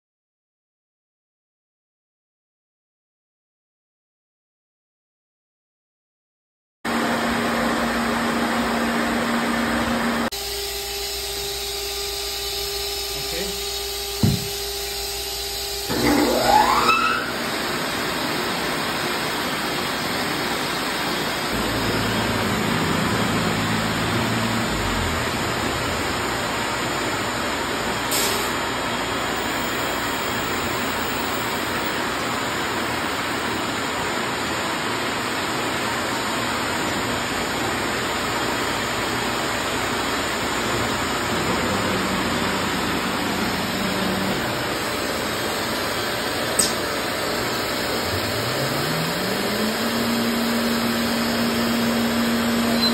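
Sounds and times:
rising whine: 6.9 - 28.1, 39.8 - 52.9
low hum: 21.5 - 26.6
vacuum system rushing: 40.4 - 52.9.

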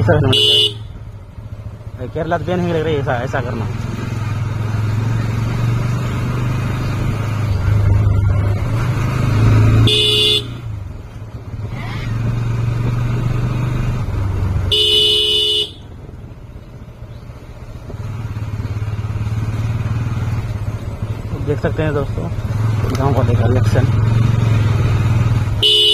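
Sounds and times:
motorcycle engine running: 0.0 - 25.9
motorcycle horn honking: 0.2 - 1.0, 9.8 - 10.7, 14.6 - 15.9, 25.6 - 25.9.

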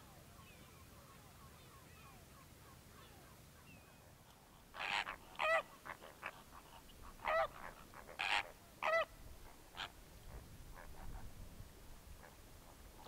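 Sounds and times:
flamingos honking: 4.8 - 9.1.

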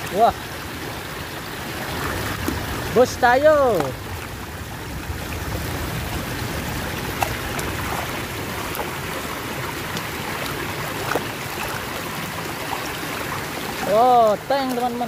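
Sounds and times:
stream water running: 0.0 - 15.0
hands splashing in water: 9.8 - 14.0.

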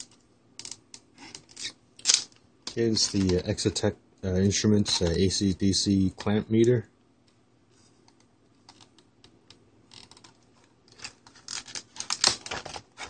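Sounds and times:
plastic packaging crinkling: 9.9 - 13.0.

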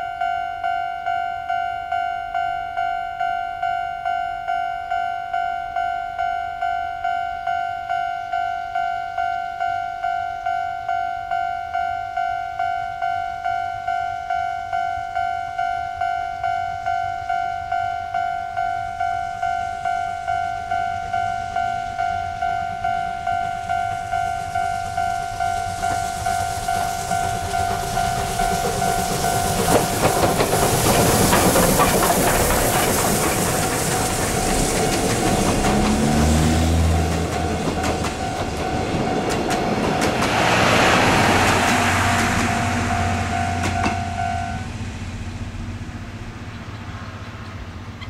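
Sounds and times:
level-crossing warning bell ringing: 0.0 - 45.8
train wheels rumbling and clicking: 18.5 - 48.0.

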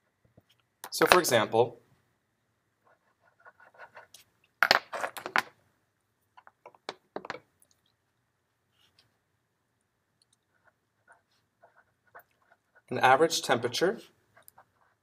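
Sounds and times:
marker scratching on paper: 2.8 - 4.3, 10.5 - 12.9, 14.0 - 15.0.

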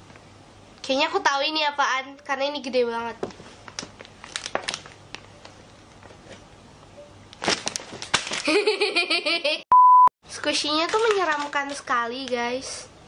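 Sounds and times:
plastic and paper rustling: 3.2 - 6.4, 7.4 - 8.8, 10.5 - 12.6
electronic beep: 9.7 - 10.1.

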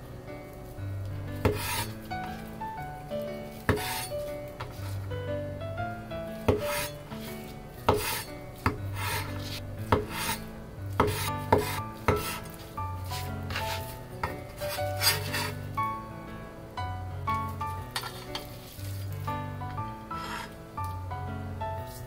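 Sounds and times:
background music with bass: 0.0 - 22.0
cleaver chopping on cutting board: 1.5 - 1.8, 6.5 - 6.9, 7.9 - 10.4, 11.0 - 12.5.

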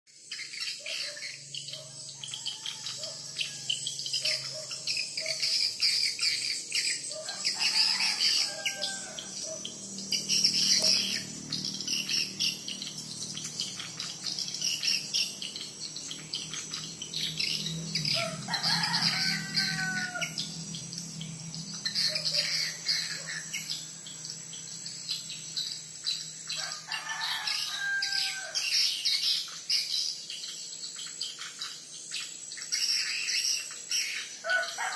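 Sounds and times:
rapid high twittering chirps: 0.1 - 34.9.

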